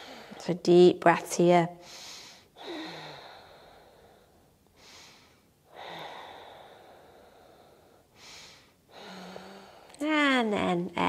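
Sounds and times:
woman breathing deeply: 0:00.0 - 0:00.5, 0:01.8 - 0:10.0.

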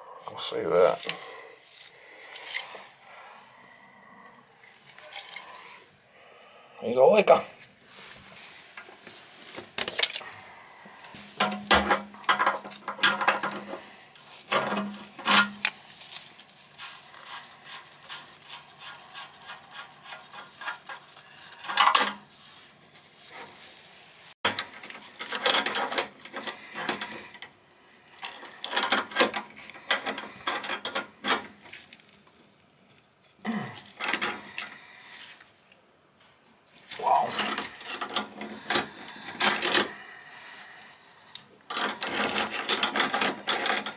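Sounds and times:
metal clicking and rattling: 0:24.5 - 0:27.5, 0:41.7 - 0:43.9.

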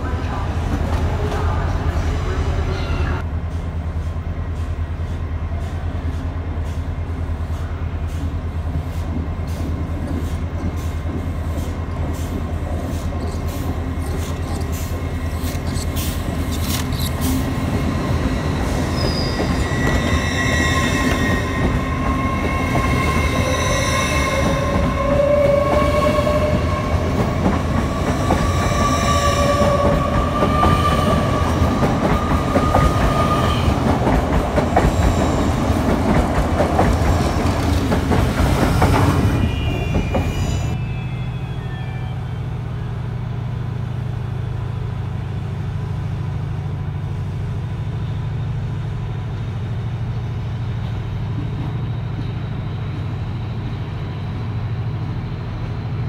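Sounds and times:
diesel train drone: 0:00.0 - 0:56.0.

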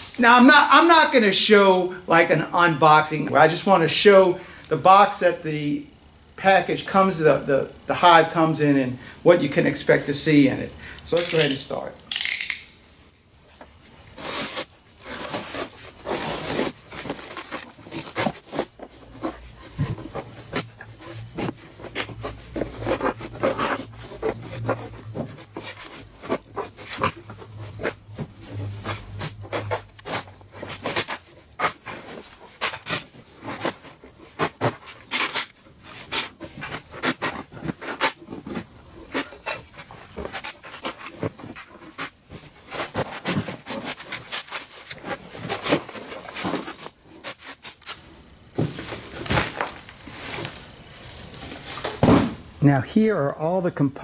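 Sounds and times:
cardboard rustling: 0:13.5 - 0:52.4.

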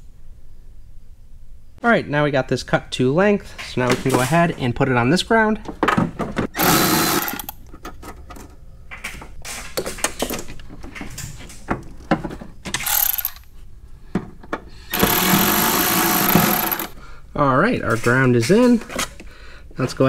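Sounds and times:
electric ratchet whirring: 0:06.6 - 0:07.6, 0:12.8 - 0:13.5, 0:14.9 - 0:17.0.

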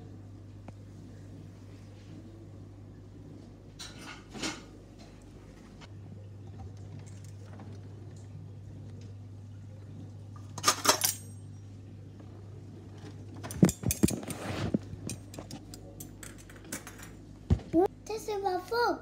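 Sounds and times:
low steady hum: 0:00.0 - 0:19.0
metal cutlery clinking in drawer: 0:10.6 - 0:11.4.

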